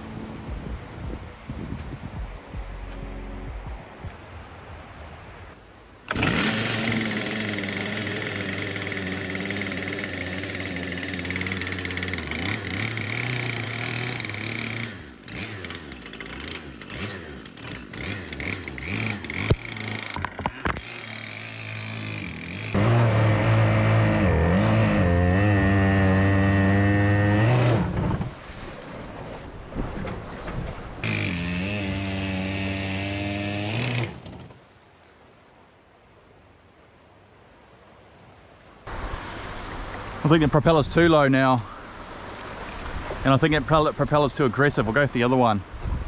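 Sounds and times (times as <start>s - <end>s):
two-stroke outboard engine running: 6.1s - 27.8s, 31.0s - 34.5s.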